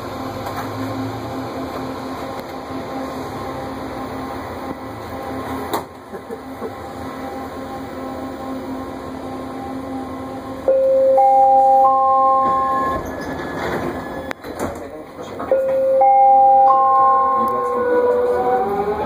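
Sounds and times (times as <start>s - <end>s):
standing train hum: 0.0s - 19.0s
train door chime: 10.6s - 19.0s.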